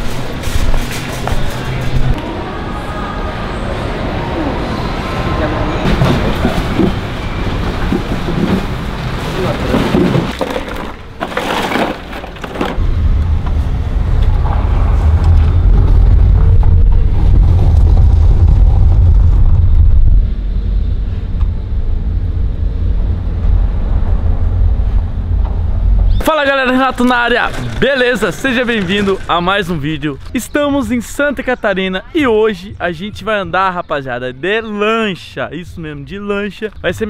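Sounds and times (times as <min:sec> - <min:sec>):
indistinct voices: 0:01.5 - 0:08.6
low rumble inside moving car: 0:12.8 - 0:26.2.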